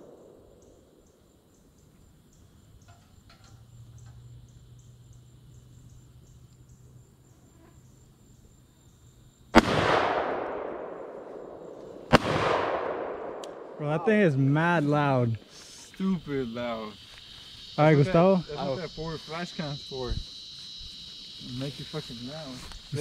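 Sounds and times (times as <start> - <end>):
rifle shots with rolling echo: 0.0 - 1.0, 9.5 - 13.9.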